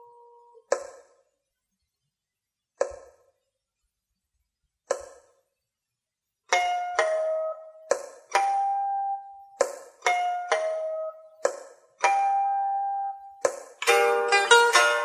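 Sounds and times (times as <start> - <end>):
pipa plucked notes: 6.5 - 15.0.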